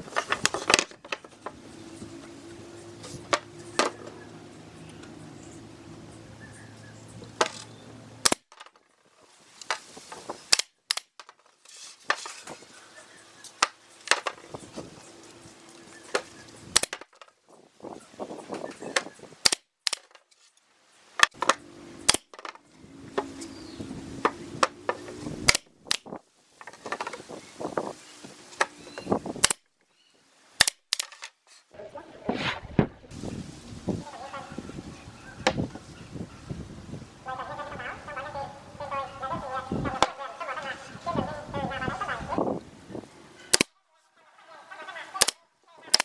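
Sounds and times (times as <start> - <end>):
handling of wood: 0.0 - 5.3, 7.1 - 33.2
nail gun firing: 8.2 - 8.6, 10.5 - 11.2, 16.7 - 17.1, 19.4 - 20.2, 21.2 - 22.5, 25.5 - 26.0, 29.4 - 29.6, 30.6 - 31.2, 43.5 - 43.7, 45.2 - 46.0.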